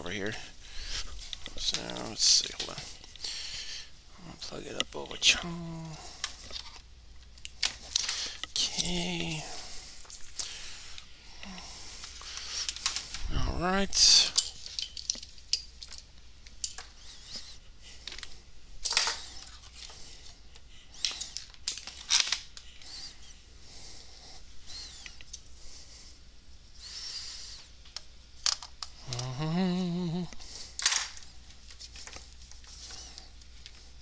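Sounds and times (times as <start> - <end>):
cables rustling: 0.1 - 23.3.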